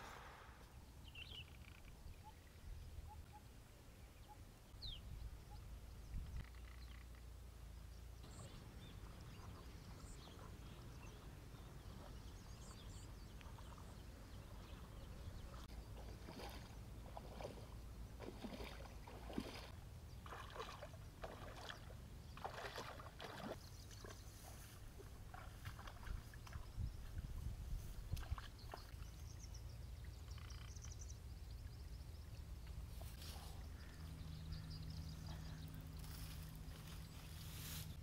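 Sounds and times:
splashing steps in shallow water: 15.5 - 24.2, 25.3 - 26.7.

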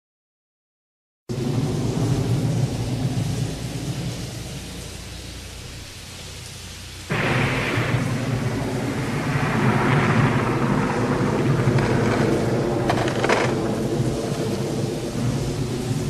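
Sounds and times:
thunder rolling: 1.3 - 6.2, 7.1 - 16.0
rain hiss: 1.3 - 16.0
sharp thunder cracks: 7.1 - 16.0.

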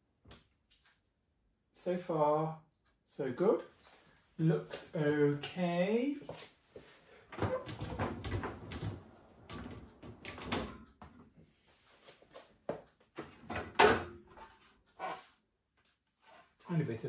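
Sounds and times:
dishwasher basket rolling on runners: 7.4 - 10.8.

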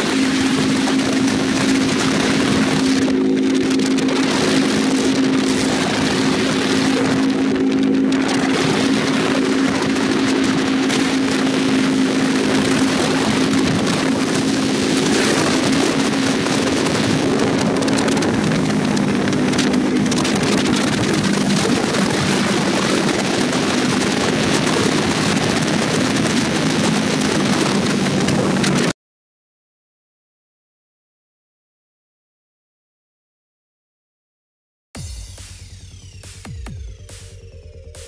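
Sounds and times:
motorcycle engine cruising: 0.0 - 28.9
wind rush over microphone: 0.0 - 28.9.

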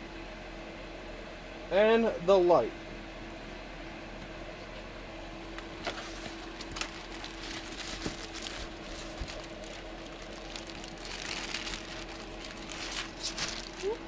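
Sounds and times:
steady low hum: 0.0 - 14.0
plastic bag crinkling: 5.8 - 14.0.

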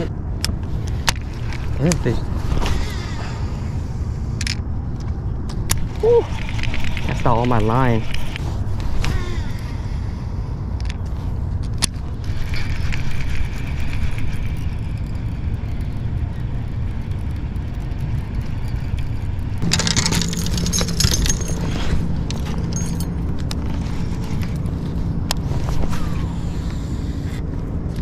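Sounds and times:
fishing reel clicks and rustling: 4.4 - 8.9, 11.6 - 25.4.

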